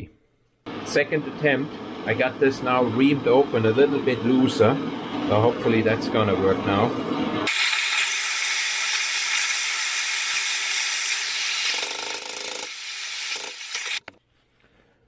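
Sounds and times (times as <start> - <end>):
heating tool hissing: 7.5 - 14.0.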